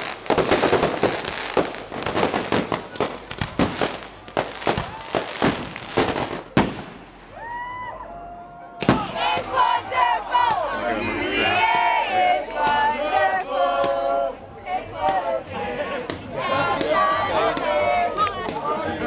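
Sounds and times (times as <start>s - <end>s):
fireworks cracking and banging: 0.0s - 7.5s, 8.8s - 9.6s.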